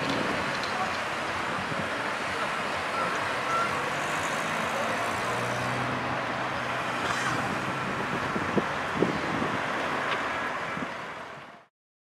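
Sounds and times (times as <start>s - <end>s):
cars moving slowly: 0.0s - 11.7s
wind on microphone: 7.0s - 11.5s.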